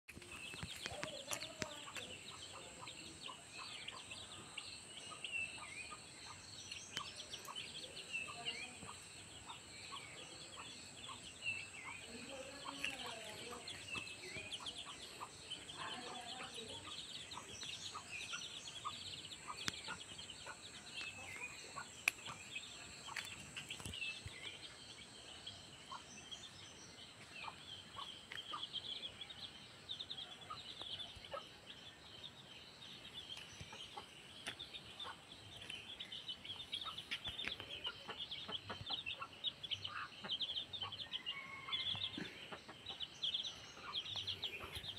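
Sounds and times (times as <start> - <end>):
chicks peeping: 0.1 - 44.9.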